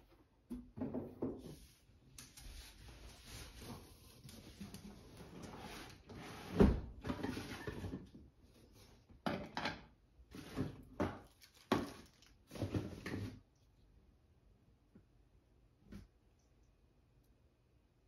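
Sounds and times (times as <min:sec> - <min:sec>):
plastic parts knocking on floor: 0:11.0 - 0:13.2.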